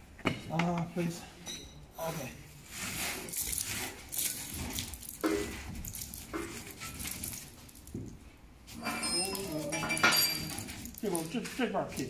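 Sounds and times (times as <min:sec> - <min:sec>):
cardboard puzzle pieces rattling: 0:03.3 - 0:08.1.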